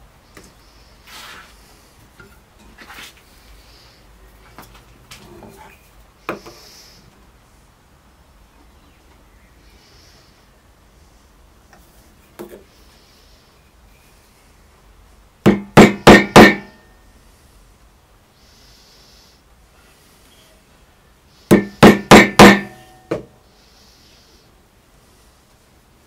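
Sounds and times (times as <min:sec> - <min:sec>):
hammer striking chisel: 0:15.5 - 0:16.8, 0:21.5 - 0:23.3.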